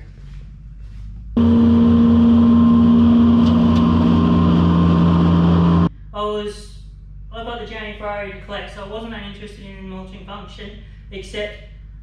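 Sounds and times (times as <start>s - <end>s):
mower engine running: 1.4s - 5.9s.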